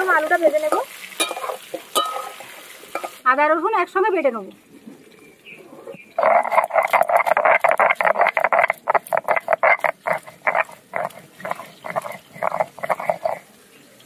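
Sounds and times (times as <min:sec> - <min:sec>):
stone scraping on stone: 0:05.7 - 0:13.4.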